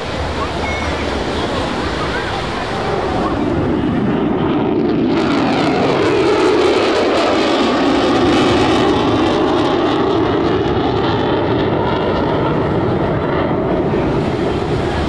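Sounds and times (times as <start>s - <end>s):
jet fighter roar flying by: 0.0s - 15.0s.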